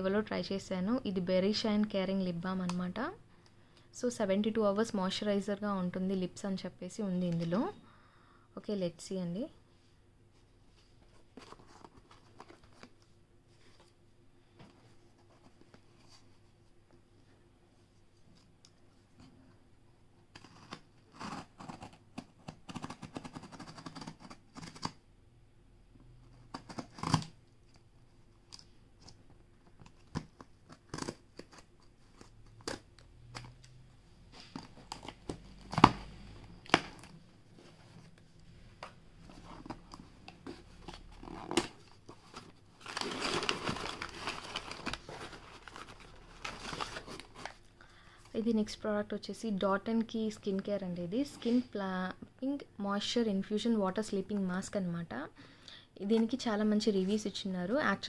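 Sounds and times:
cardboard tearing and crinkling: 20.4s - 24.9s, 40.5s - 47.6s.

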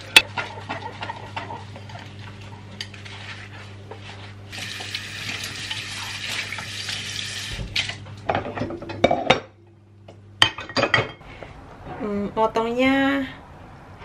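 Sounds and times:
dishes clattering: 0.0s - 2.1s, 7.8s - 9.6s, 10.4s - 11.2s
tap water running into sink: 4.5s - 7.8s.

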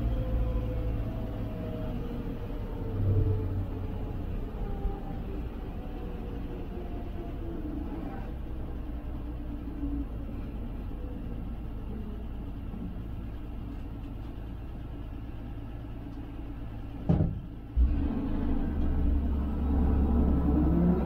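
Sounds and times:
truck engine running: 0.0s - 21.0s
clunk: 17.0s - 18.1s.

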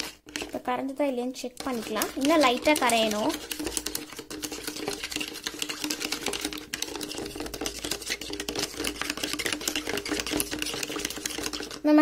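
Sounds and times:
metal spoon scraping plastic bowl: 0.0s - 12.0s.

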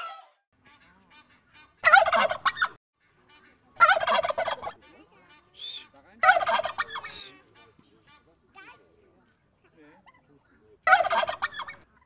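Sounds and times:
turkeys gobbling: 0.7s - 8.2s, 10.0s - 12.0s.

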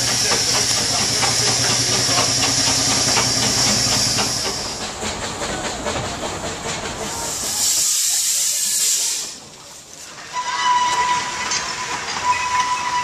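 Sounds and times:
loud hiss of escaping steam: 0.0s - 4.9s, 6.8s - 9.5s
steam whistle: 10.3s - 13.0s.

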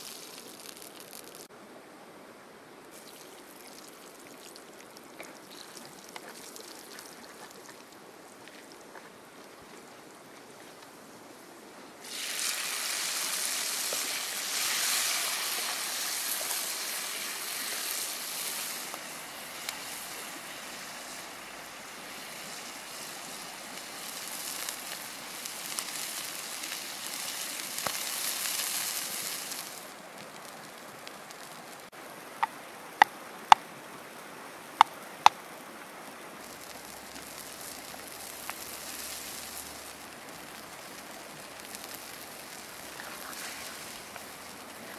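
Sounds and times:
water pouring into a wok: 12.0s - 20.9s.

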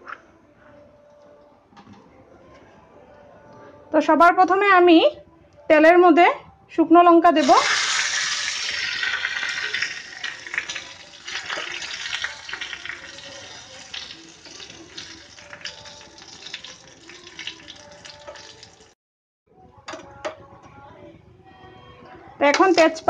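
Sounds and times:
chillies sizzling in hot oil: 7.4s - 19.0s
oil crackling and popping: 7.4s - 19.0s.

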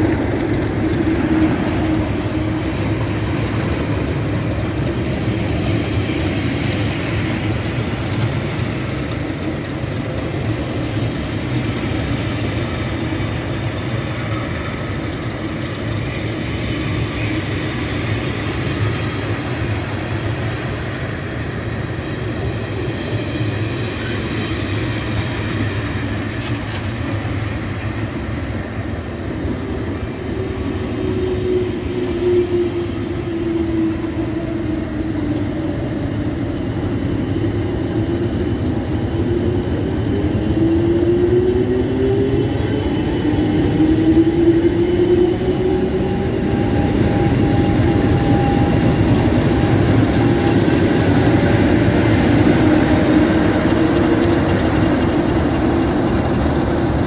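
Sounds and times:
diesel locomotive passing: 0.0s - 57.0s
train coaches rumbling on rails: 0.0s - 57.0s
wavering whine: 28.4s - 57.0s.

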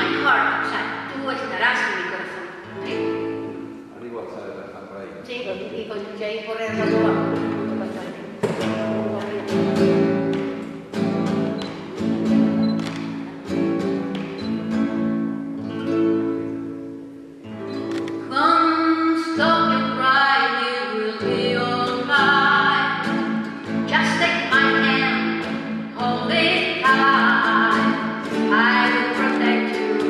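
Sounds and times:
strummed classical guitar: 0.0s - 1.6s, 2.2s - 4.2s, 6.7s - 30.0s
woman singing: 18.3s - 23.2s, 23.9s - 30.0s.

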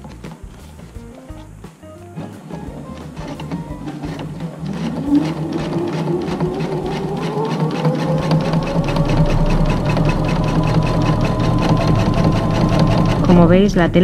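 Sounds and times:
sewing machine needle strokes: 2.2s - 13.4s
sewing machine motor whine: 2.7s - 13.7s.

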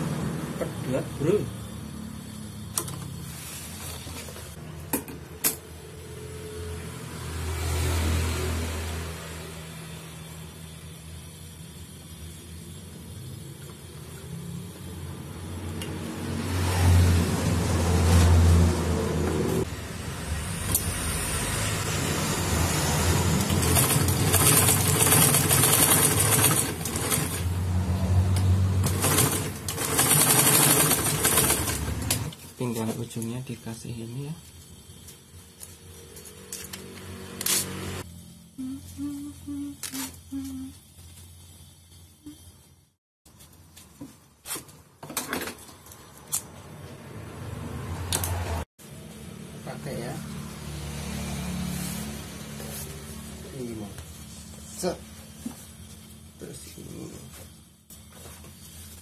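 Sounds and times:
sewing machine motor humming: 23.1s - 27.8s, 28.8s - 32.4s.

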